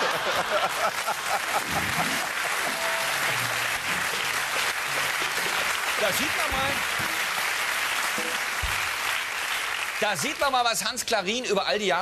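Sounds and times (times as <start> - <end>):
audience laughing: 0.0 - 4.2
audience applauding: 0.0 - 11.0.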